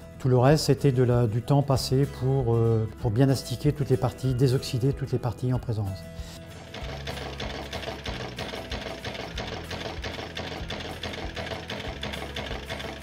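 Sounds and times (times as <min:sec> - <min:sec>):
electric motor clattering: 0:06.6 - 0:13.0.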